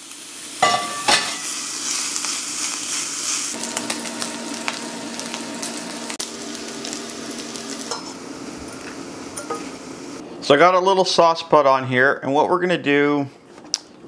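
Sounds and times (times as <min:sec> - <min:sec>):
bacon sizzling in a pan: 0:00.0 - 0:10.2.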